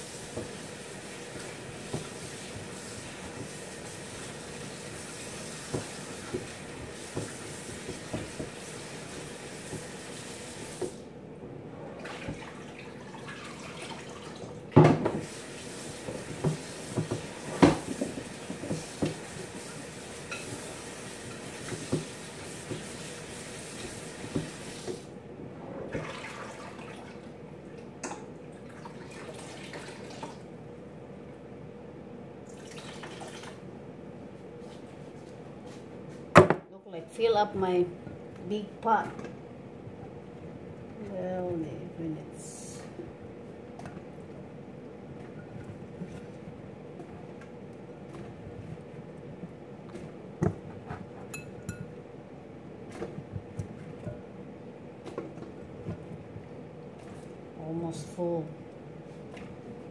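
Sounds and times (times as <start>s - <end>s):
tap running water into pot: 0.0s - 11.0s, 13.2s - 25.0s
pots and dishes clanking: 20.2s - 20.6s, 50.4s - 52.0s.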